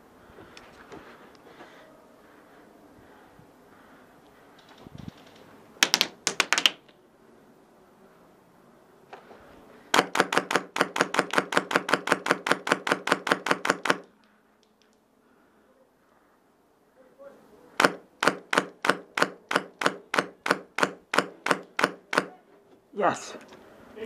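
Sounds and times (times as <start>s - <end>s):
airsoft rifle shots: 9.9s - 14.1s, 17.8s - 22.4s.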